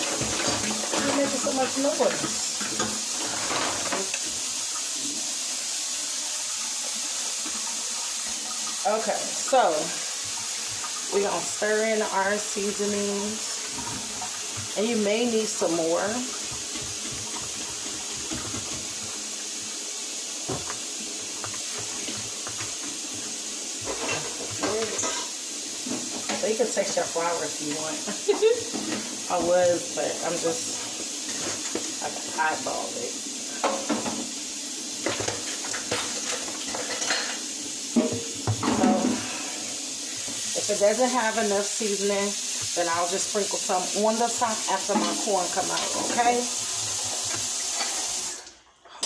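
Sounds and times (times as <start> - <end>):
water running from tap: 0.0 - 48.7
dishes clicking and scraping: 35.0 - 37.4.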